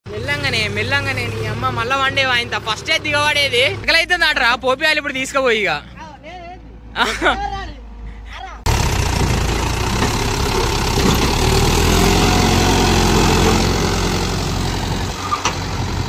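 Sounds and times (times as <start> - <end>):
tractor diesel engine running: 7.1 - 16.0.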